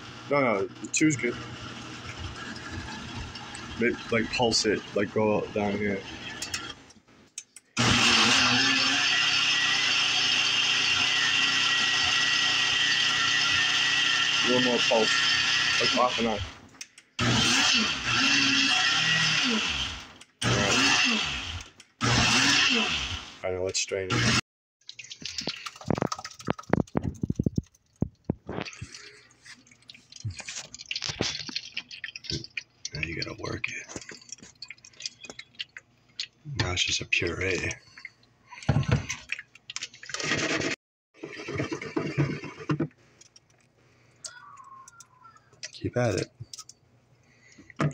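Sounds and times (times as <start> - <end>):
blender running: 0.0 - 6.5, 7.8 - 16.5, 17.2 - 23.4, 24.1 - 24.4, 40.1 - 42.8
thick puree pouring with wet plops: 24.8 - 40.2
wet squishing: 24.8 - 40.2.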